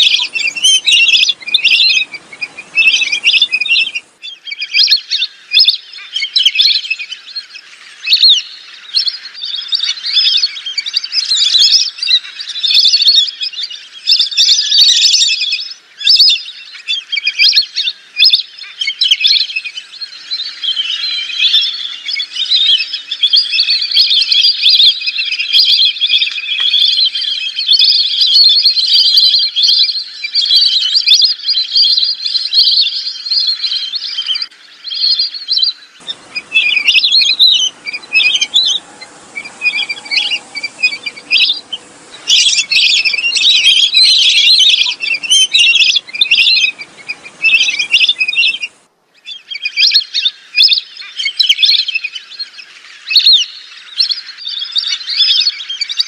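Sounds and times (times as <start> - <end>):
ducks whistling calls: 0.0 - 13.5, 34.0 - 48.8.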